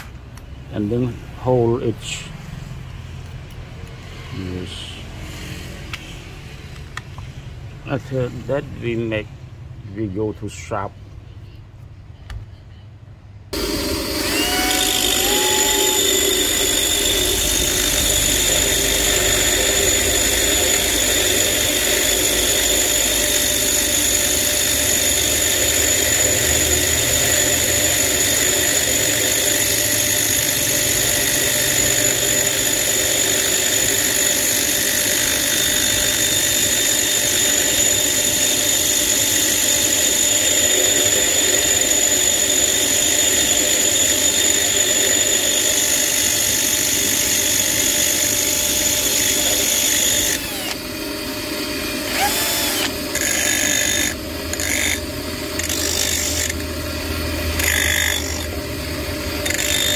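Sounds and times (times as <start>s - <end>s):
high motor whine: 13.5s - 59.9s
metal grinding on grinding wheel: 13.6s - 51.0s, 51.7s - 59.9s.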